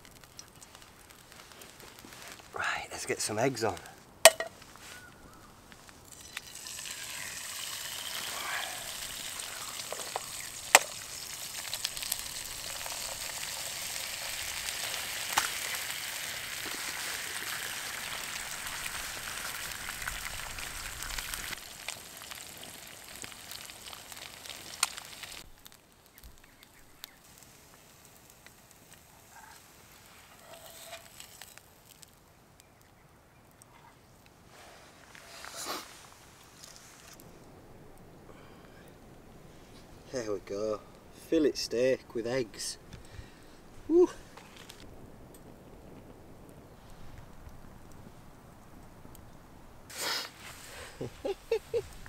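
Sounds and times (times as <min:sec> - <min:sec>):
eggs sizzling in frying pan: 0:00.0 - 0:32.4.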